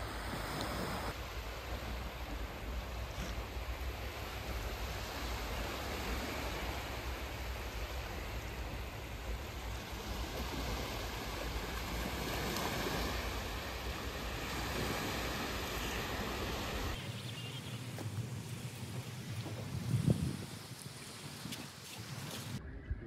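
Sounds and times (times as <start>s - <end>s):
small waves washing on beach: 0.0s - 22.6s.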